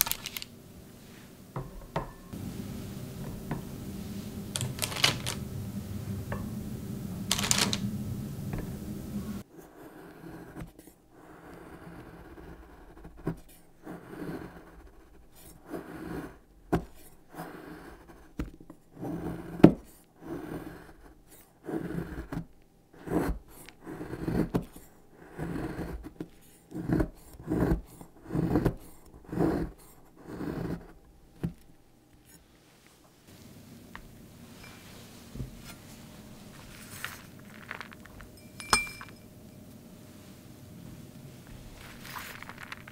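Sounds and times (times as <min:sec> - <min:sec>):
knife scraping chocolate: 0:09.5 - 0:31.0.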